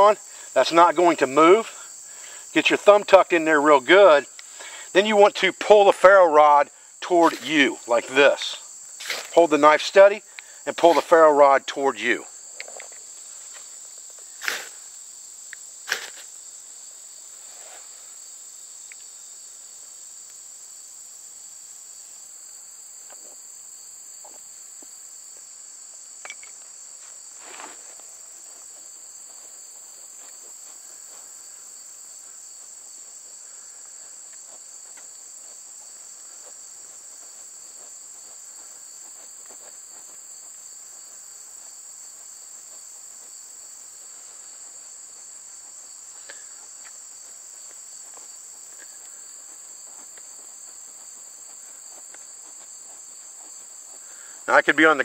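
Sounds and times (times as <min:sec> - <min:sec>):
insects chorus: 0:00.0 - 0:55.0
short scrape: 0:14.4 - 0:14.8, 0:15.8 - 0:16.3, 0:17.4 - 0:18.0, 0:27.4 - 0:27.9.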